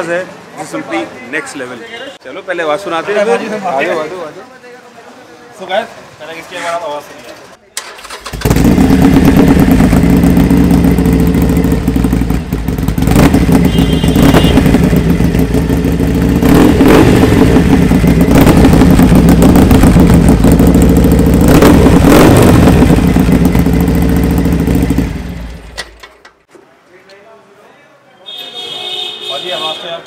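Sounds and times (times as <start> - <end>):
motorcycle engine revving: 7.8 - 26.0.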